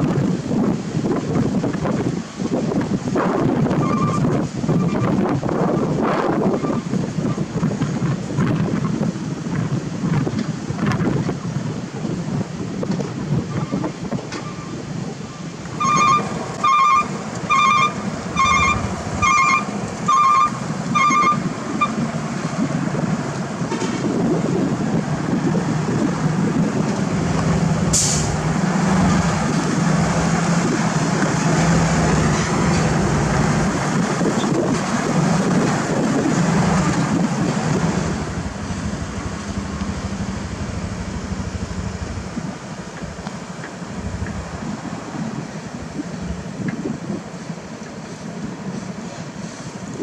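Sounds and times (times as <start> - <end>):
wind buffeting microphone: 0.0 - 50.0
short beeps: 15.8 - 21.4
truck diesel engine running: 16.0 - 22.2, 24.5 - 34.3, 35.0 - 45.0
brief sharp hiss: 27.9 - 28.5.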